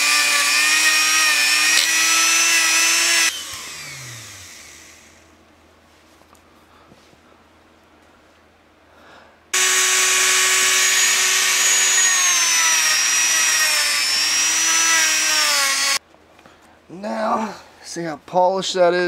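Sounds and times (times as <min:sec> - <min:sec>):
rotary tool motor whining: 0:00.0 - 0:05.3, 0:09.6 - 0:16.0.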